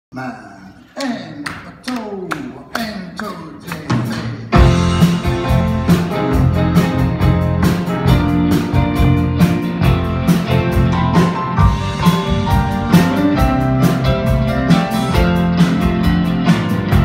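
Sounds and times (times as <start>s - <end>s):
live rock band playing: 3.9s - 17.0s.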